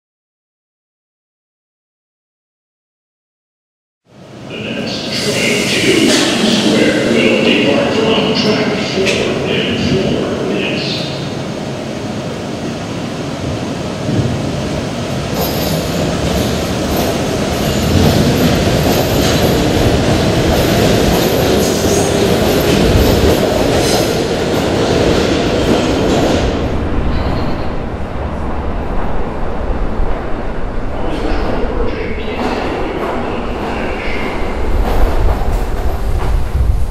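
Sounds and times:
subway train passing: 4.1 - 36.9.

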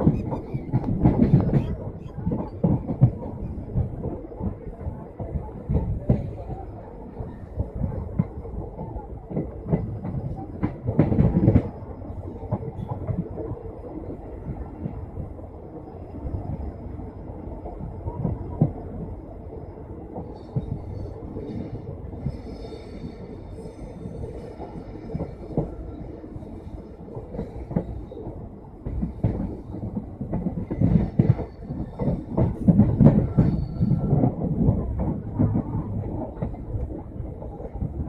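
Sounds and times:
train wheels clattering over joints: 0.0 - 6.6, 27.3 - 36.9.

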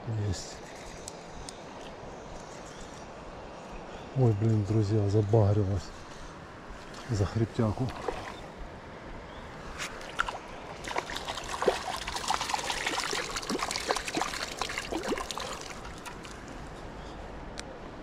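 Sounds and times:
stream trickling: 6.7 - 8.8, 9.4 - 17.3
fish splashing at water surface: 7.9 - 8.5, 10.0 - 16.6.

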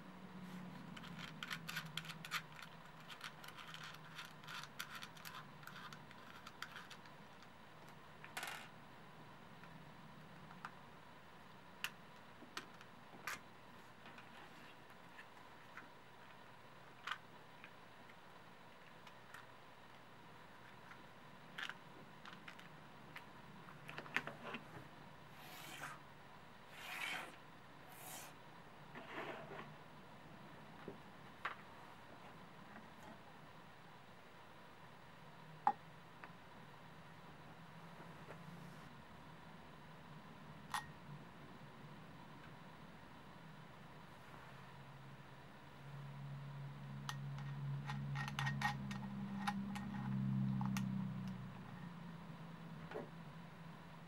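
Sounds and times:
small metal clicks and scratches: 0.8 - 8.7, 47.1 - 51.4
brushing sliding sounds on wood: 25.4 - 26.0, 26.7 - 28.4
clock hand scraping: 26.7 - 28.4.

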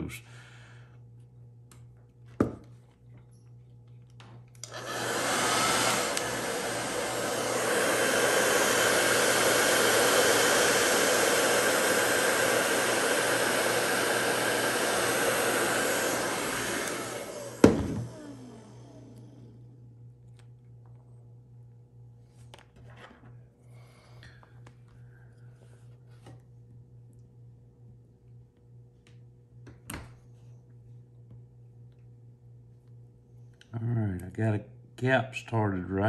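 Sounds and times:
hairdryer blowing: 4.6 - 19.8.

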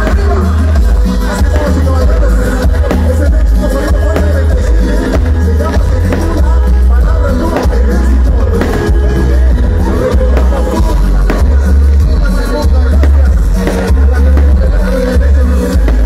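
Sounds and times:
loud live cumbia music: 0.0 - 16.0.

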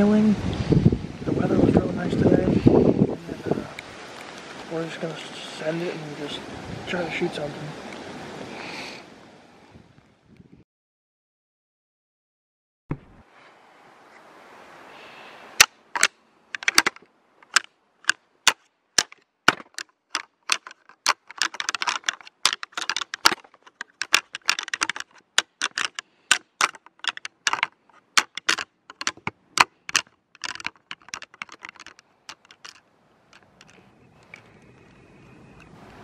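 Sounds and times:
antlers rattling and clashing: 15.9 - 34.4.

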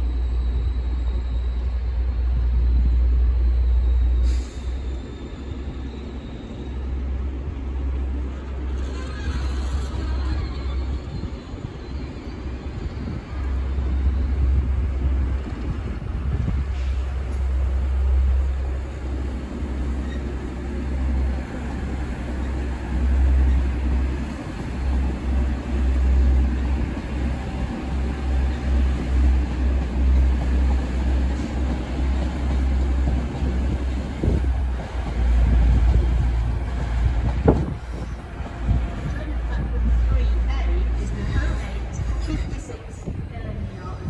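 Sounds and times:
diesel train rumble: 0.0 - 44.0
wind buffeting microphone: 9.8 - 18.3, 21.0 - 44.0.

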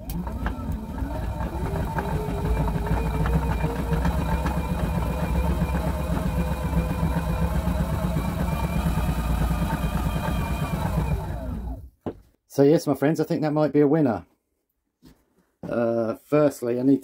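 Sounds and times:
spin bike flywheel whirring: 0.0 - 11.9.

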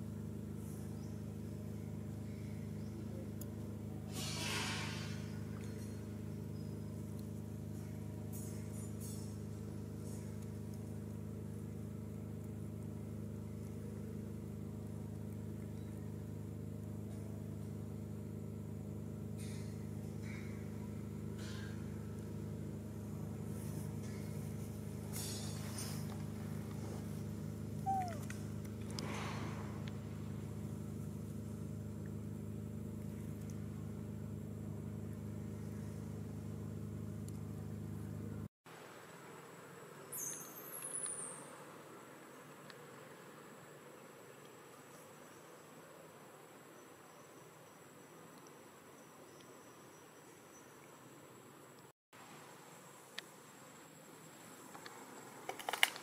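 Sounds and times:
steady low hum: 0.0 - 40.1.

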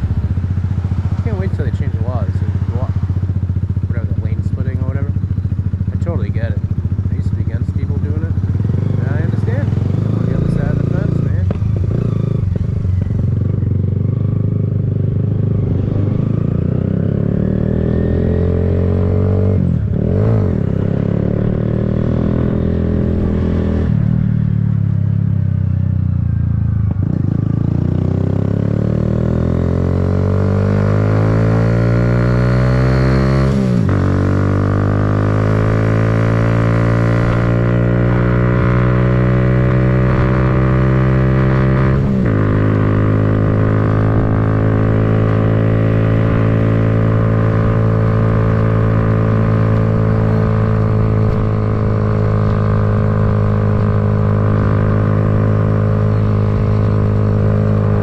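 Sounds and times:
motorcycle engine shifting gears: 0.0 - 58.0.

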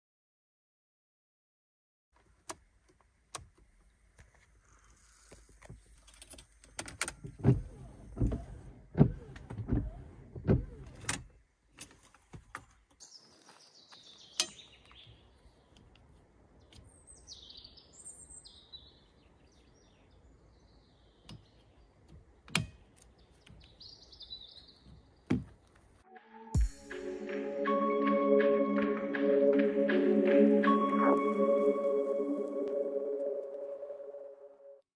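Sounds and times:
birds chirping: 13.0 - 25.7.

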